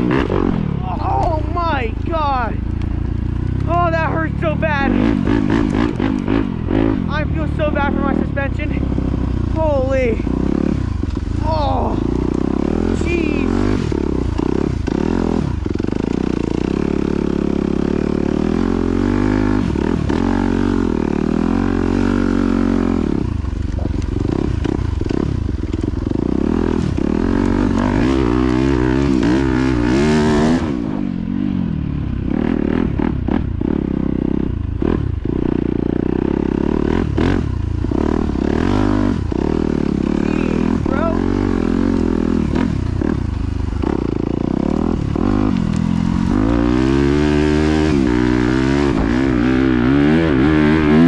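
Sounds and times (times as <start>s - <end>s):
motorcycle engine revving: 0.0s - 51.0s.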